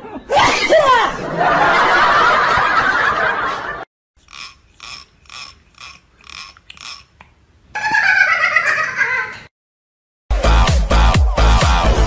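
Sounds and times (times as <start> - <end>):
fingernail raked across comb teeth: 4.2 - 7.2.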